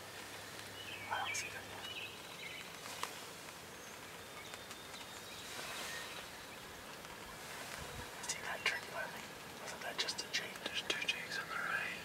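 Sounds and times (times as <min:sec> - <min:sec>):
faint outdoor ambience: 0:00.0 - 0:12.0
faint bird calls: 0:00.7 - 0:02.7.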